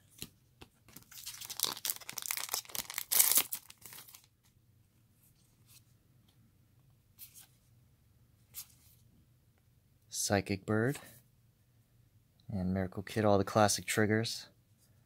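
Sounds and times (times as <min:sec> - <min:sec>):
cards being leafed through: 0:00.9 - 0:04.3
wrapper being torn open: 0:01.0 - 0:04.3.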